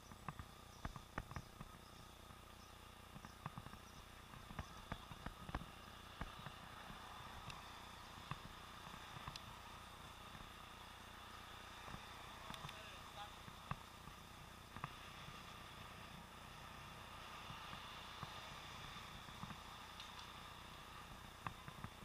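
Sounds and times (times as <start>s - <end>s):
steady hiss: 0.0s - 22.0s.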